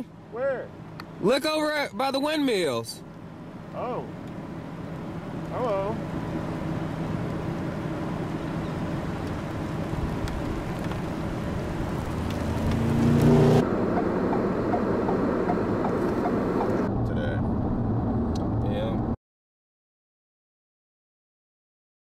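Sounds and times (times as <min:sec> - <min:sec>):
vehicle engine rumble: 0:00.0 - 0:19.2
louder engine sound: 0:11.1 - 0:19.0.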